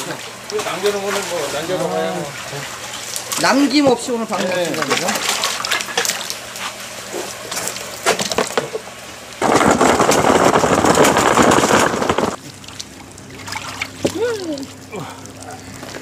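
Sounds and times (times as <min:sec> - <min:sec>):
light splashes and knocks: 0:02.9 - 0:08.8
water gushing out: 0:09.4 - 0:12.4.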